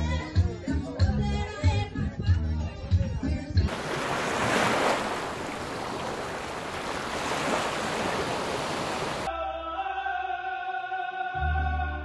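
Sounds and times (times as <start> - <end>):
ocean surf breaking: 3.7 - 9.3.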